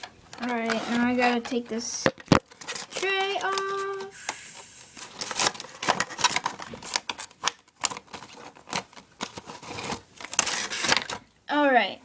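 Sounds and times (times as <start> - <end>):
plastic tray clicking and crackling: 5.2 - 11.2.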